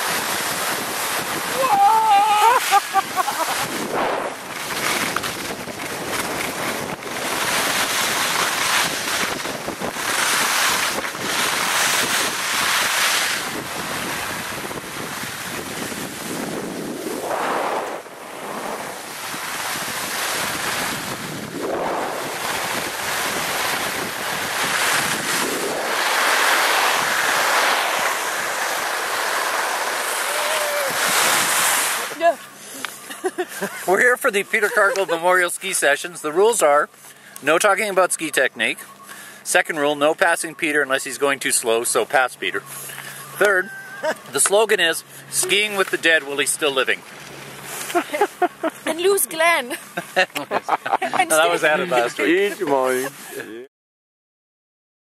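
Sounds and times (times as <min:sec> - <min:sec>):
skis scraping on snow: 0:00.0 - 0:32.2, 0:32.9 - 0:36.4, 0:44.3 - 0:53.6
wind rushing over microphone: 0:00.0 - 0:32.2.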